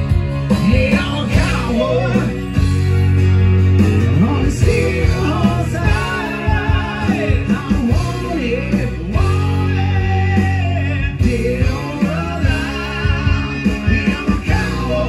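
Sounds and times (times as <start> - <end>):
strummed acoustic-electric guitar: 0.0 - 15.0
two men singing: 0.4 - 2.7, 4.0 - 15.0.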